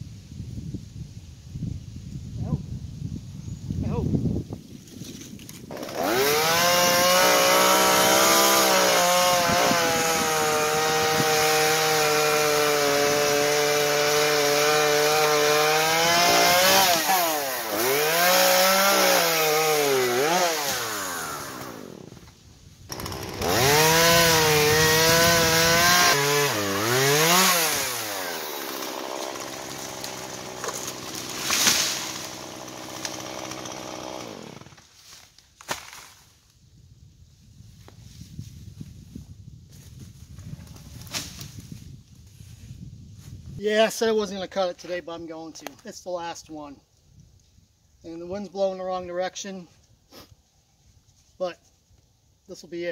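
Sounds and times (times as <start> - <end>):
chainsaw cutting and revving: 5.6 - 22.2, 22.9 - 34.9.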